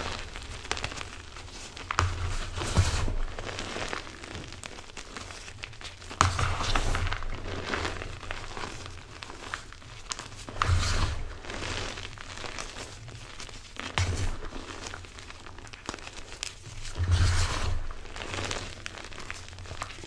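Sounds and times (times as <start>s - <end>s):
chalk crunching and crumbling: 0.0s - 20.0s.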